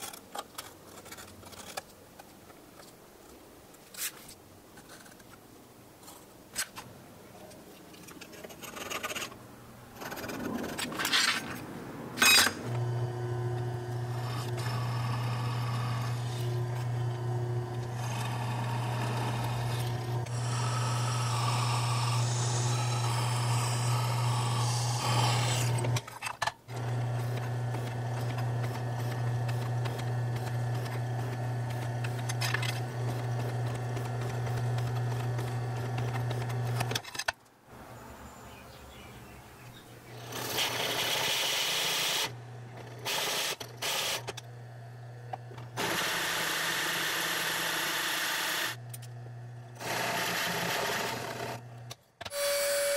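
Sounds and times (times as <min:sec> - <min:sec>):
drill press humming: 0:12.2 - 0:26.1, 0:26.7 - 0:37.0, 0:40.2 - 0:52.9.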